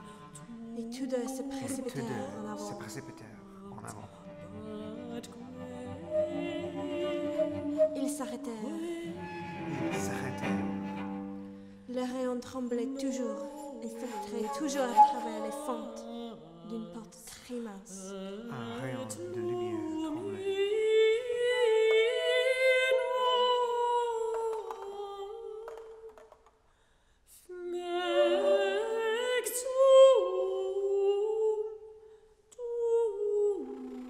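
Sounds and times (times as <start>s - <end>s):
flute long held notes: 1.6s - 11.7s, 13.8s - 16.4s.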